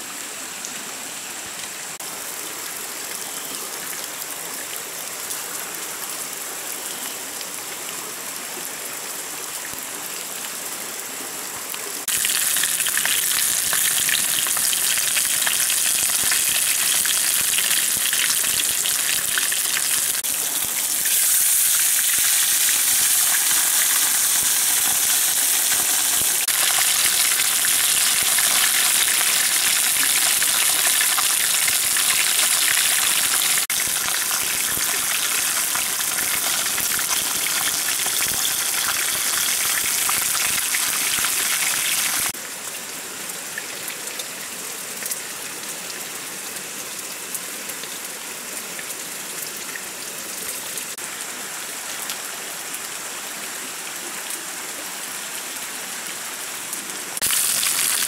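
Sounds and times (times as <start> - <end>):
outdoor hiss: 8.9 - 42.4, 56.1 - 58.0
fish sizzling in hot oil: 12.0 - 42.3, 57.2 - 58.0.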